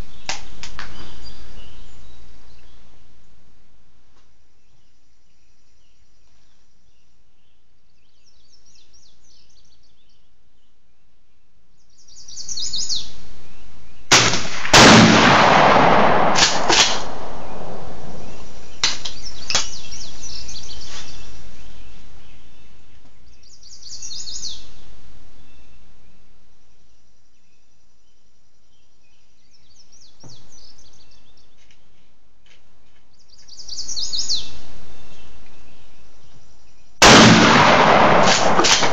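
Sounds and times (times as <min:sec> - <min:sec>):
songbirds chirping: 0:00.0 - 0:38.9
shotgun firing: 0:14.1 - 0:18.4, 0:37.0 - 0:38.9.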